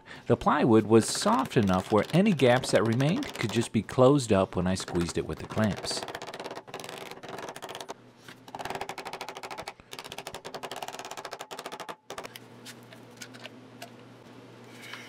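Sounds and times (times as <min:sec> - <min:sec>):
rubber mallet tapping on plywood: 0:01.2 - 0:03.6, 0:04.8 - 0:07.9.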